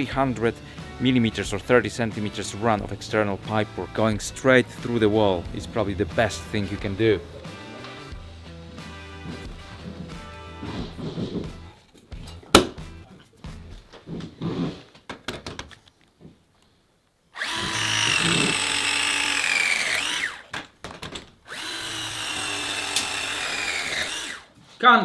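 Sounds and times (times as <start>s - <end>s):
pipe bender motor whine: 17.4s - 20.5s, 21.5s - 24.5s.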